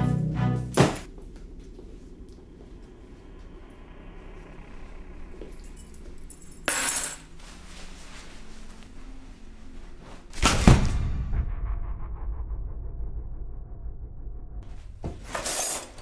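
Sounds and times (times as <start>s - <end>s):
loud crash with deep boom: 10.4s - 15.0s.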